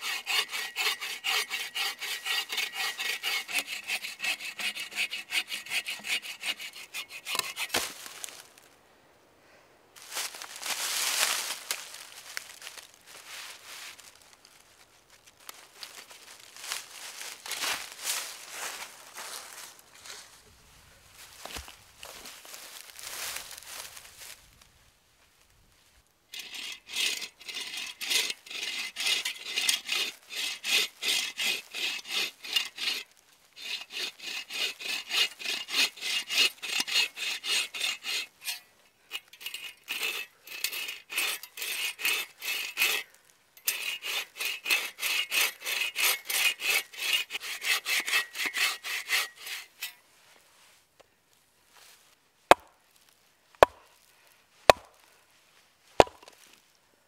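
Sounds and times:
saw rasping through log: 0:00.0 - 0:07.9, 0:26.4 - 0:50.0
axe striking log: 0:52.5 - 0:52.8, 0:53.6 - 0:53.9, 0:54.7 - 0:55.0, 0:56.0 - 0:56.4.

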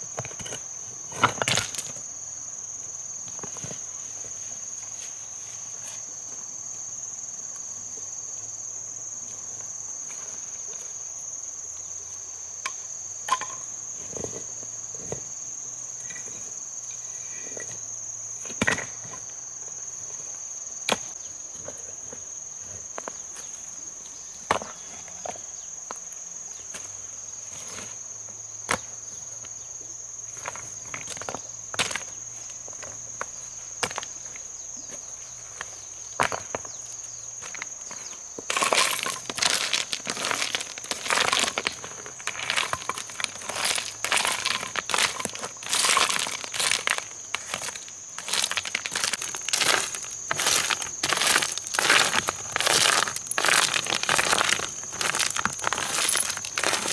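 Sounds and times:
high-pitched insect trilling: 0:29.1 - 0:56.9.

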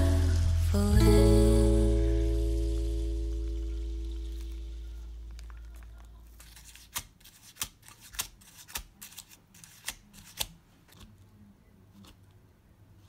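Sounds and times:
background music: 0:00.0 - 0:04.8.

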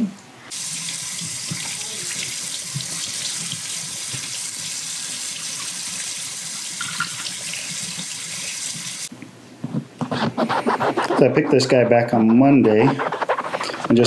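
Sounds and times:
faucet running into a metal sink: 0:00.5 - 0:09.0.

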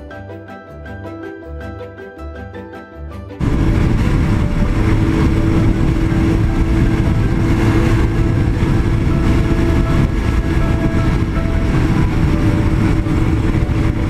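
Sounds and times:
heavy wind noise: 0:03.4 - 0:14.0
motorcycle engine cruising: 0:03.4 - 0:14.0.

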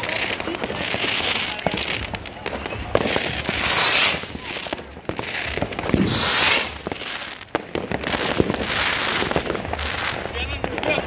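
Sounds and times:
fireworks bangs and crackles: 0:00.0 - 0:11.0
loud rushing hiss: 0:03.5 - 0:04.4, 0:06.0 - 0:06.9.

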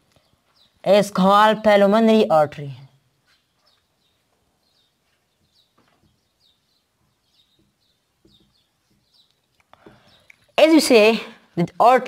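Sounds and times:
faint bird chirps: 0:02.9 - 0:11.5.

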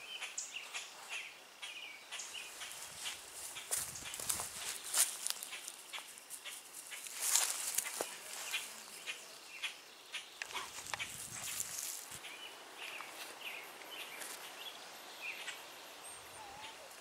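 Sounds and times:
birds chirping: 0:00.0 - 0:17.0
footsteps rustling through grass: 0:02.2 - 0:09.1, 0:10.6 - 0:14.6.

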